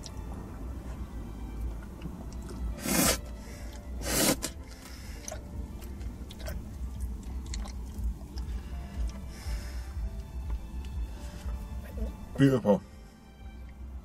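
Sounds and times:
person licking and chewing: 0:01.8 - 0:09.3
loud mouth sounds: 0:02.5 - 0:03.3, 0:04.0 - 0:04.7.

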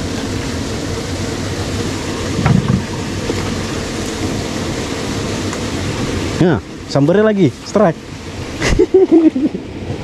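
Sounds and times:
boat motor droning: 0:00.0 - 0:10.0.

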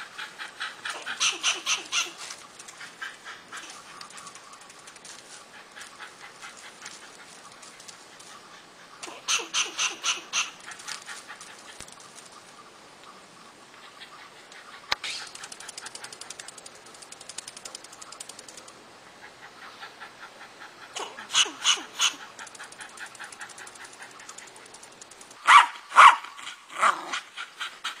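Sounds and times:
squirrel sharp calls: 0:00.0 - 0:04.9, 0:08.2 - 0:12.1, 0:19.1 - 0:24.6, 0:25.4 - 0:26.5
squirrel clicking chatter: 0:00.0 - 0:08.4, 0:09.0 - 0:12.4, 0:14.4 - 0:18.8, 0:20.9 - 0:25.7
dog barking loudly: 0:00.8 - 0:02.2, 0:21.0 - 0:22.3, 0:25.4 - 0:27.2.

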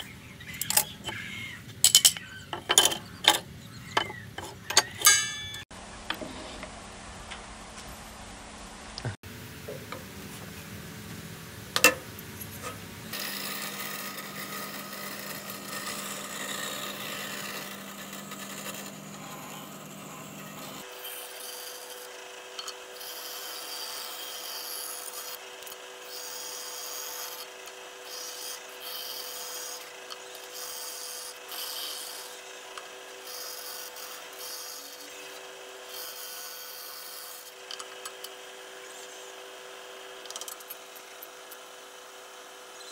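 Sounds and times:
motor hum: 0:00.0 - 0:42.9
bandsaw blade cutting wood: 0:02.0 - 0:05.7, 0:12.6 - 0:42.2.

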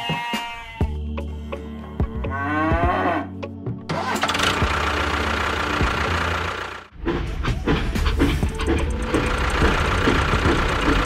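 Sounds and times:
cow mooing: 0:02.2 - 0:03.4
engine-like rushing noise: 0:04.2 - 0:11.0.

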